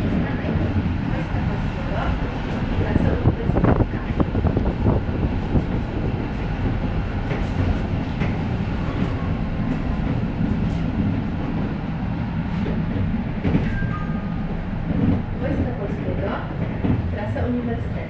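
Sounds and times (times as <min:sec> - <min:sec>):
tram wheels rumbling: 0:00.0 - 0:18.0.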